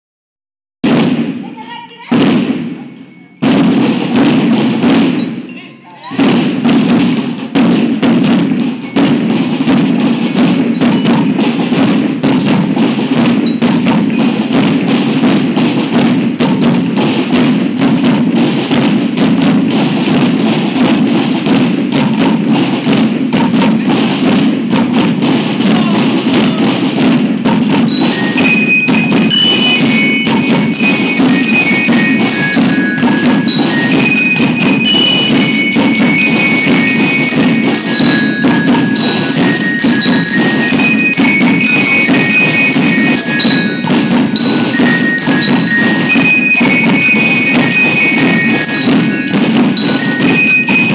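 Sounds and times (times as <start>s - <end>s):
marching band drum beat: 0.8s - 50.9s
bell lyres ringing melody: 2.8s - 3.5s, 5.2s - 6.2s, 8.8s - 15.1s, 26.6s - 50.9s.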